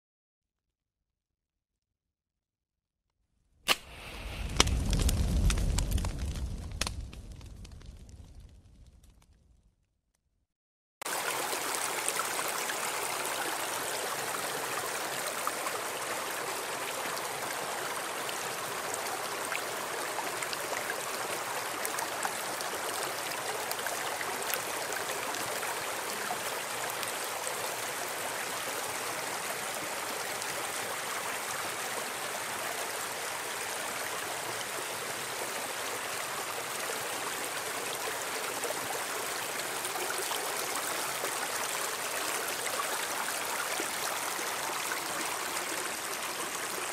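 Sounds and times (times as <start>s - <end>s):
stream running over rocks: 11.0s - 46.9s.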